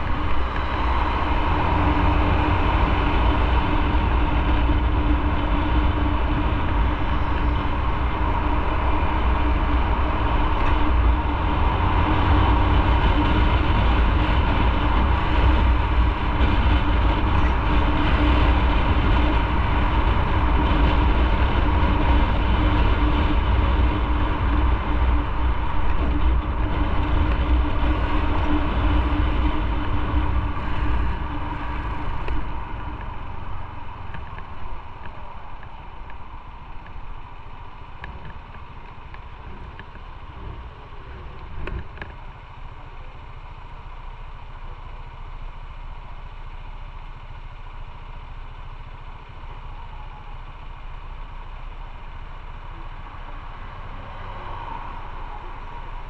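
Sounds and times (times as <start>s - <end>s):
wind rumble on microphone: 0.0s - 42.6s
motorcycle engine: 0.0s - 56.0s.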